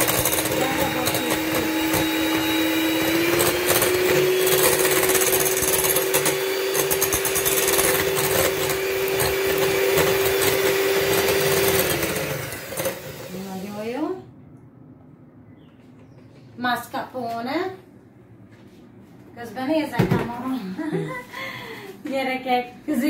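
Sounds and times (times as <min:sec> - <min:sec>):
electric mixer whipping: 0:00.0 - 0:14.0.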